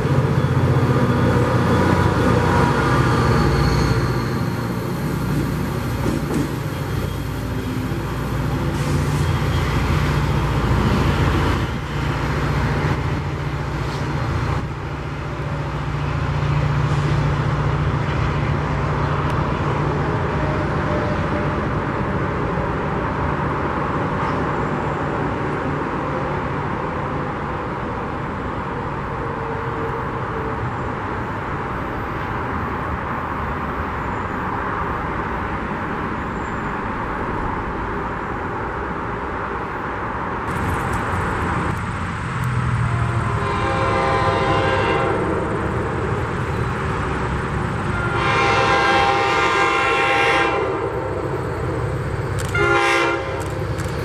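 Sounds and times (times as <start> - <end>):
diesel train rumbling: 0.0 - 54.0
locomotive air horn blasts: 43.3 - 45.4, 47.8 - 51.1, 52.5 - 53.5.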